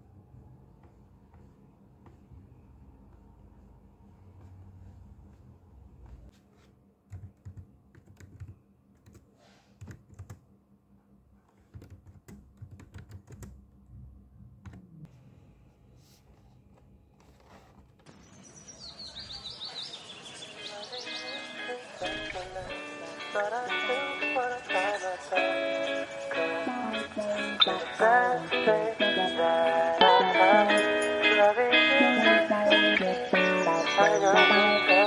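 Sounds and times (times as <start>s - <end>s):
laptop keyboard typing: 7.1s - 10.4s, 11.5s - 13.6s
music with high chirping glides: 18.2s - 35.0s.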